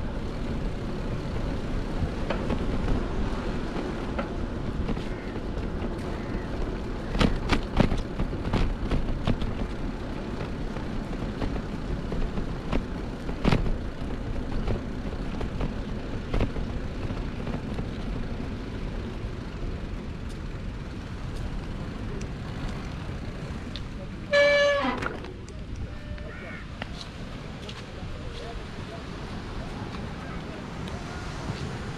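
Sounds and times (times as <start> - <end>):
bicycle rolling over bricks: 0.0 - 25.8
horn-like falling tone: 24.3 - 25.1.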